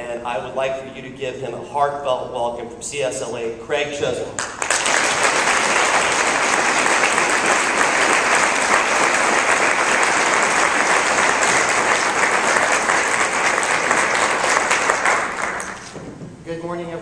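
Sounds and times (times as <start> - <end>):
audience applauding: 4.4 - 16.0.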